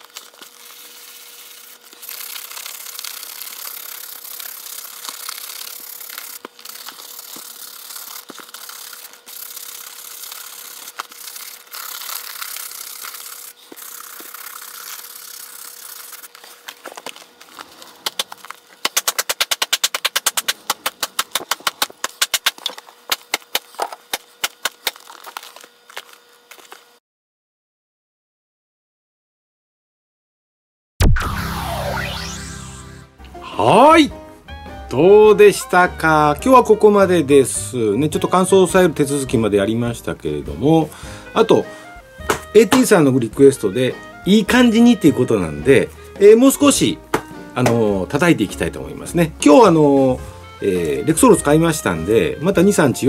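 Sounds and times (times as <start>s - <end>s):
brush rubbing leather glove: 0.0s - 26.8s
sharp taps on glove: 42.3s - 42.9s, 47.1s - 47.8s.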